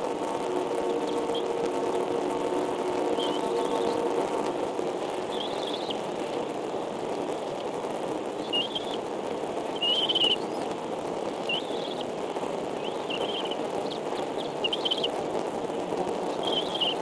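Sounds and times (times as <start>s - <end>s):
steady background hiss: 0.0s - 17.0s
eagle chicks peeping: 0.8s - 1.8s, 2.9s - 7.7s, 8.3s - 9.1s, 9.7s - 15.5s, 16.2s - 17.0s.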